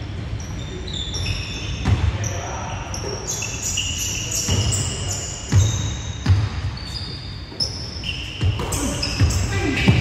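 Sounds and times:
basketball bouncing on wooden floor: 0:05.5 - 0:06.7.

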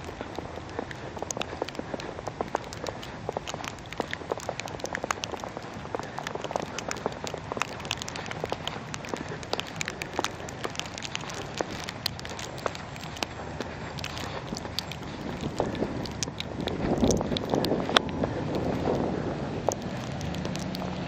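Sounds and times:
wet snow ticking against camera: 0:00.0 - 0:21.0.

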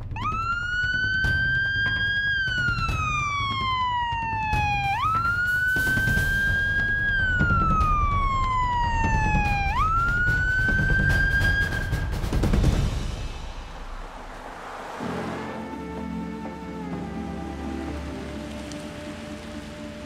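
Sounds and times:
ambulance siren wailing: 0:00.0 - 0:12.5, 0:13.8 - 0:20.0.

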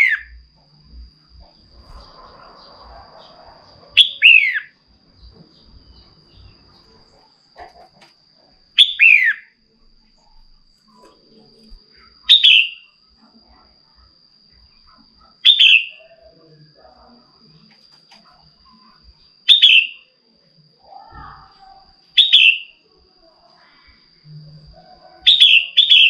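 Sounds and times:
bulbul calling: 0:04.0 - 0:04.7, 0:08.8 - 0:09.5, 0:12.2 - 0:12.9, 0:15.4 - 0:16.3, 0:19.5 - 0:20.0, 0:22.2 - 0:22.8, 0:25.2 - 0:26.0.

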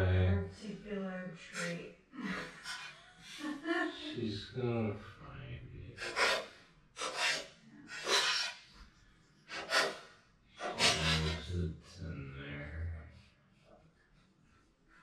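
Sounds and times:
dog sniffing and snorting: 0:06.0 - 0:08.7, 0:09.5 - 0:11.5.

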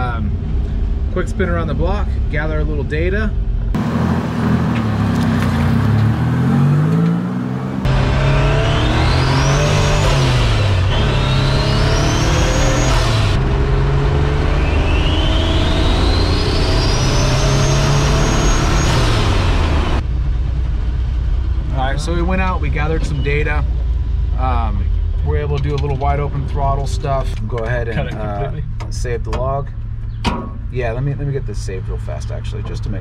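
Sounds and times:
turbocharger whine: 0:03.7 - 0:25.2
engine accelerating hard: 0:03.7 - 0:28.6.

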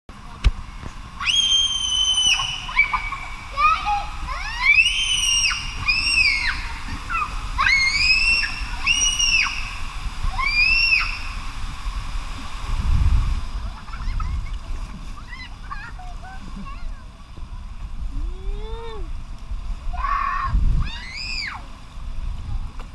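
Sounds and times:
water sloshing on slide: 0:00.1 - 0:22.9
child squealing: 0:01.2 - 0:09.6, 0:10.3 - 0:11.2, 0:20.0 - 0:21.6.

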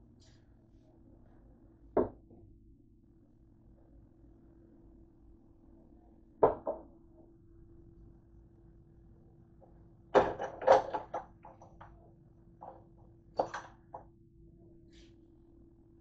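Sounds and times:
faint steady hum: 0:00.0 - 0:16.0
kitchen things knocking and clattering: 0:10.2 - 0:12.0, 0:12.6 - 0:14.0.

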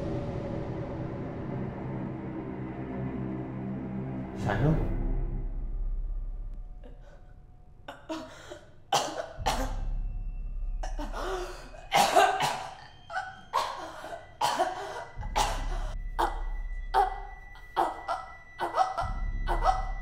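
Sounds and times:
low hum: 0:00.0 - 0:20.0
woman coughing and gasping: 0:07.9 - 0:09.9, 0:10.8 - 0:20.0.

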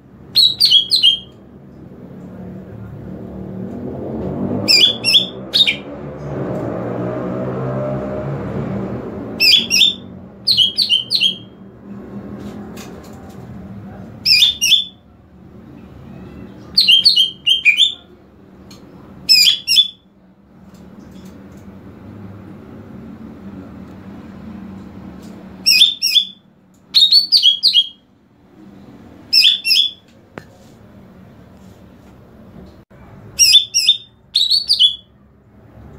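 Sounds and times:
bird singing rapid chattering notes: 0:00.4 - 0:01.3, 0:09.4 - 0:11.5, 0:14.3 - 0:15.0, 0:16.6 - 0:18.0, 0:25.7 - 0:26.4, 0:27.0 - 0:28.0, 0:29.3 - 0:30.0, 0:33.4 - 0:35.0.

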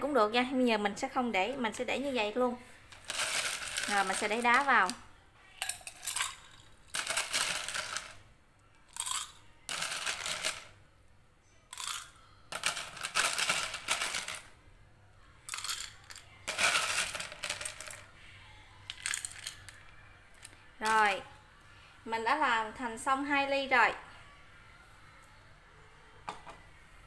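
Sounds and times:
ice cubes clinking in a glass: 0:03.0 - 0:04.9, 0:05.6 - 0:08.2, 0:08.9 - 0:10.7, 0:11.7 - 0:14.4, 0:15.5 - 0:18.0, 0:18.9 - 0:19.7.

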